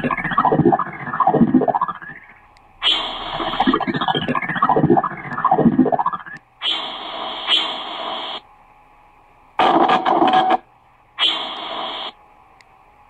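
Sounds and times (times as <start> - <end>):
glitchy sweeping tones: 0.0 - 6.4
bursts of static hiss: 2.8 - 4.6, 6.6 - 8.5, 11.2 - 12.2
crackling burst: 2.8 - 8.4.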